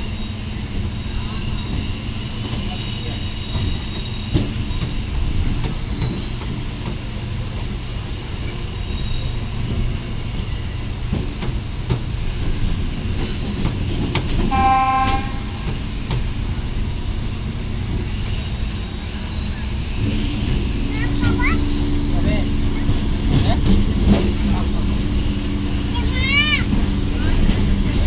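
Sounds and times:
train rumbling on rails: 0.0 - 28.0
train horn: 14.5 - 15.7.

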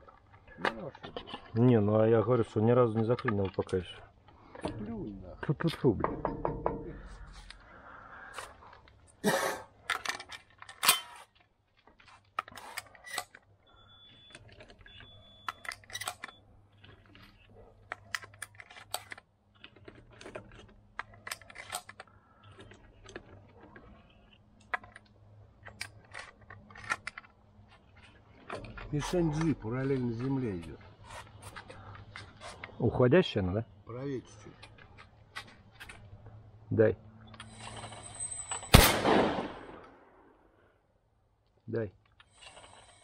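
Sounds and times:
shotgun and shells clinking: 9.3 - 11.4, 14.3 - 16.4, 37.3 - 40.4
shotgun clacks: 38.7 - 40.0.

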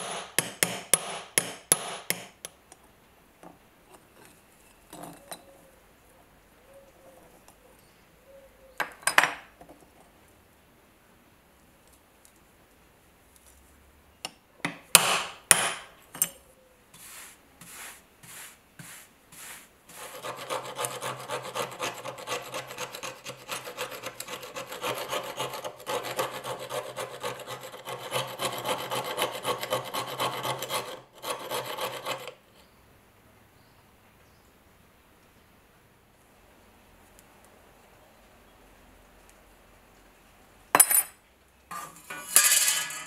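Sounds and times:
sharp metal knocks: 0.0 - 2.3, 15.0 - 15.9
steel tool scraping metal: 17.0 - 32.3, 41.7 - 43.0.

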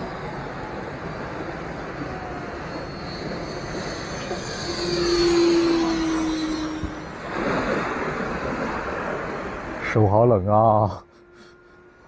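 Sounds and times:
model jet fan whining: 0.0 - 8.1, 11.0 - 12.0.

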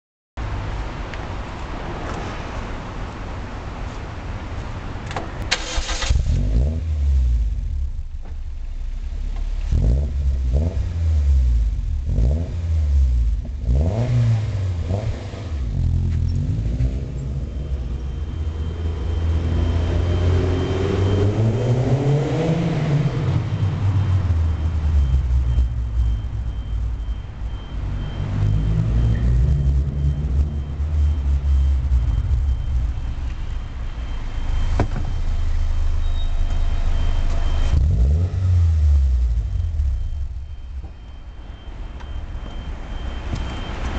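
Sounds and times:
car accelerating away: 5.5 - 7.9, 9.6 - 25.6, 27.8 - 33.0, 35.8 - 40.1
car engine revving: 5.5 - 8.1, 9.0 - 40.6.

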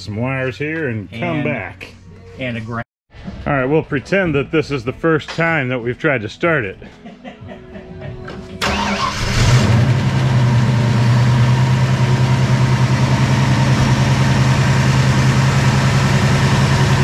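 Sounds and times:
car engine starting and idling: 8.4 - 17.0.

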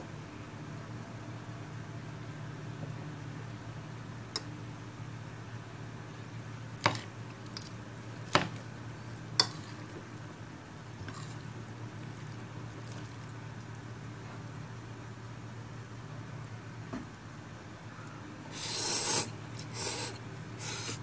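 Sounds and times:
chopsticks tossing noodles in a bowl: 6.8 - 10.4, 11.0 - 13.9.

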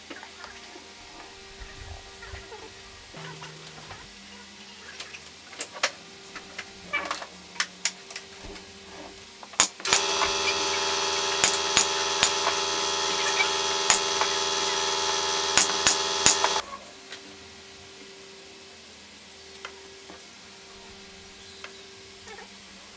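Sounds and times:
nails firing with sharp cracks: 9.6 - 16.6
nailer motor whirring: 9.8 - 16.6.

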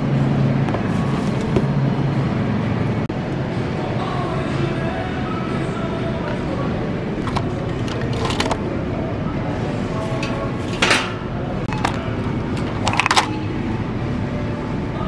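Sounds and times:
glass jars clinking: 7.2 - 8.6, 12.6 - 13.4.

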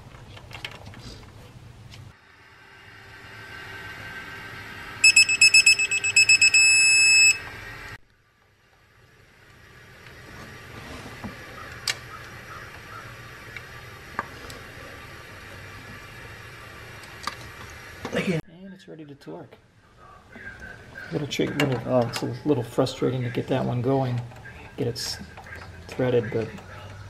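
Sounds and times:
electronic beeping: 5.0 - 7.5.

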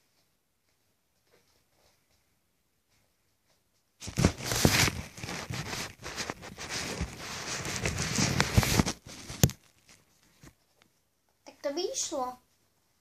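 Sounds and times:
microphone handling rustling and knocks: 4.0 - 10.8.

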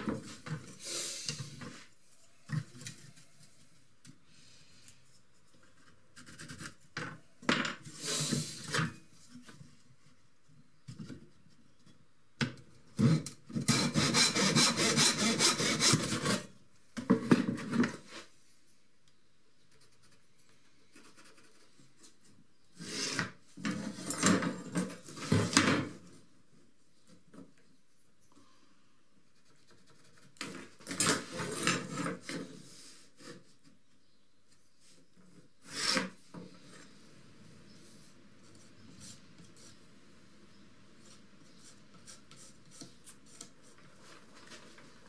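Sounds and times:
hand saw cutting plywood: 13.0 - 16.5.

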